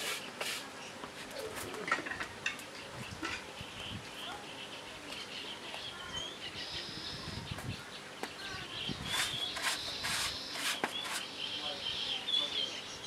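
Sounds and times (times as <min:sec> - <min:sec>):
small birds chirping: 0:00.0 - 0:13.0
rustling noise: 0:08.9 - 0:11.3.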